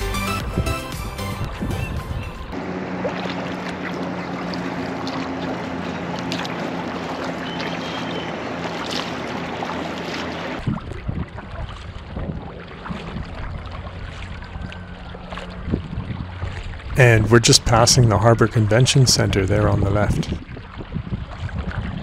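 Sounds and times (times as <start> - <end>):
paddle splashes and drips: 2.5 - 17.7, 20.1 - 22.0.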